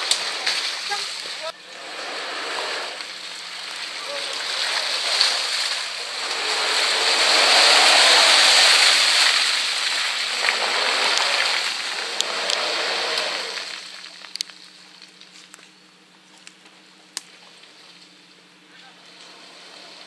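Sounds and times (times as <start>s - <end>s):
rush of muddy spray: 0.0s - 14.2s
tyres churning through mud: 0.0s - 15.6s, 16.2s - 20.0s.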